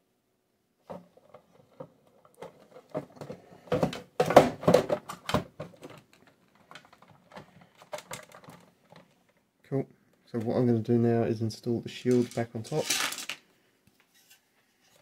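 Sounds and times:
batteries knocking and scraping: 0.9s - 9.4s, 12.1s - 13.4s.

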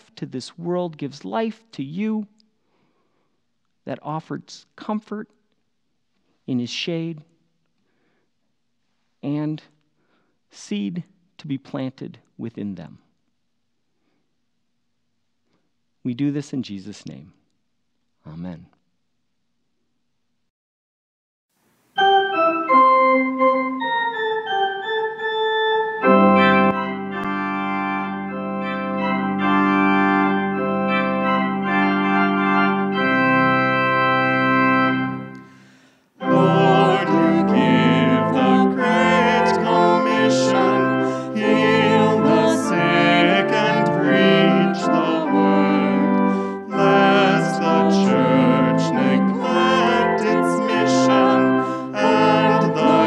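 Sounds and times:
organ music: 21.9s - 53.0s.

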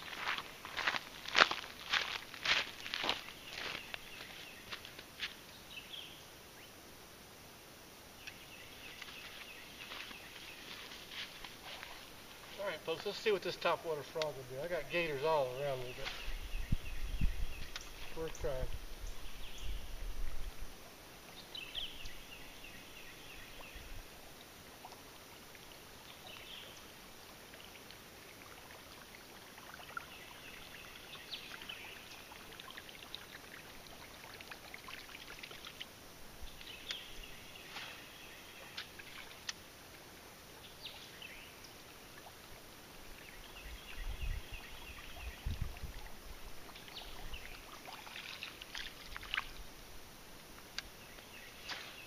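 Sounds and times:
light ticks: 14.2s - 14.4s, 50.6s - 51.3s.

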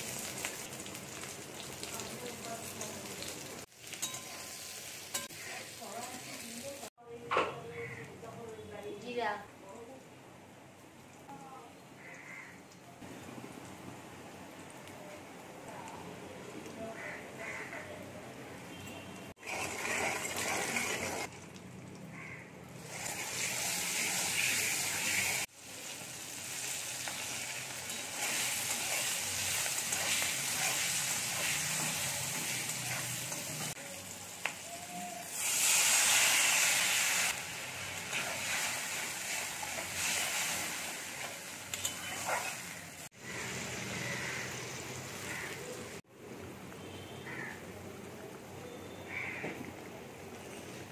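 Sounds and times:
vegetables sizzling in hot oil: 0.0s - 7.0s, 19.3s - 21.9s, 22.7s - 46.0s.

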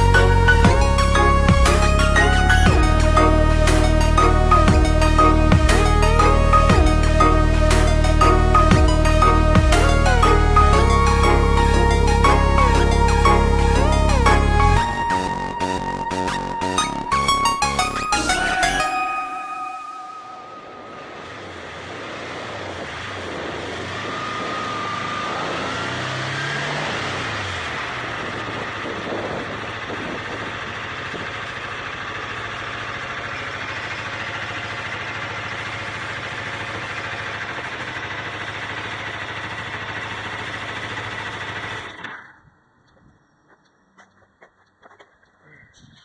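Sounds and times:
motorcycle engine idling: 27.3s - 45.4s.

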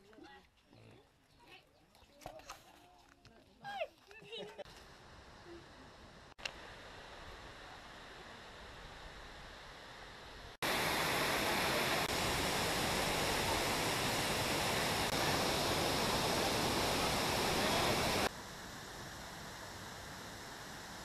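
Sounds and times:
waterfall rushing over rocks: 10.3s - 21.0s.

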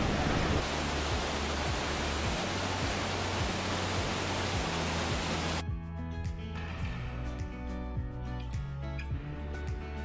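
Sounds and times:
waterfall roaring: 0.0s - 5.6s.

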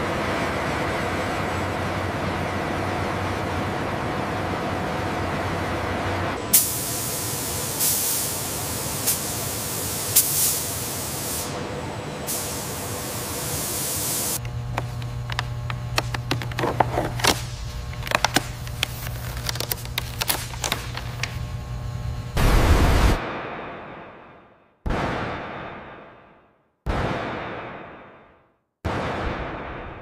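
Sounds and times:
spray guns hissing: 6.5s - 11.7s, 12.3s - 14.4s
plastic sheet crackling: 15.9s - 21.4s.

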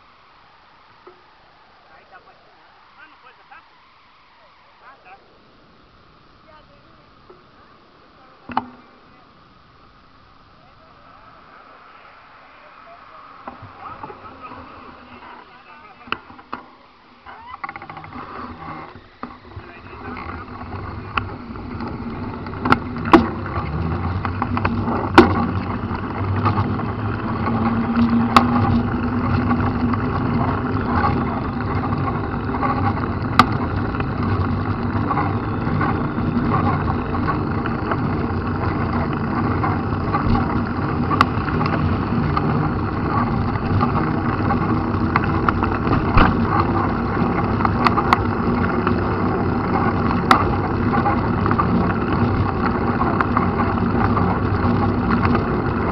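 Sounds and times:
bike tyre noise on wet road: 0.0s - 55.9s
wind rushing: 10.2s - 16.0s.

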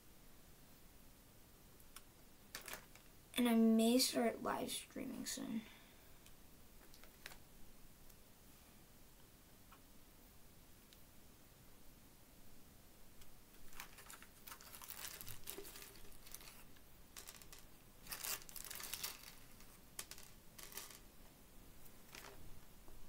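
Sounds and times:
beads rattling: 2.5s - 3.1s, 13.7s - 21.1s, 22.0s - 22.4s
plastic bag crinkling: 2.5s - 3.1s, 13.6s - 21.0s, 22.1s - 22.4s.

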